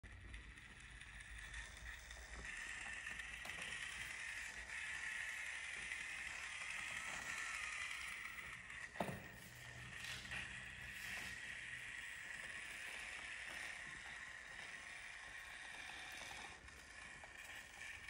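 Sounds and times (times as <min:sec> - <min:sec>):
toy car electric motor whining: 0:00.1 - 0:18.0.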